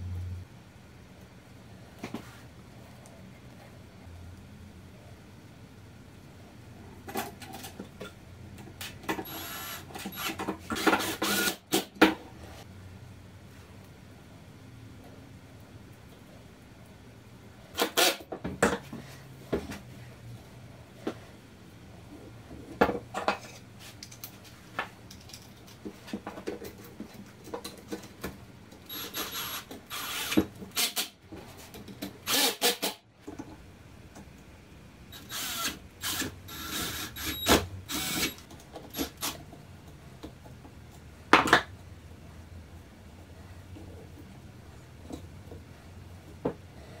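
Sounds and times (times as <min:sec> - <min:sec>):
cordless drill driving screws: 0:09.2 - 0:11.8, 0:28.9 - 0:31.1, 0:32.3 - 0:33.0, 0:35.2 - 0:39.4.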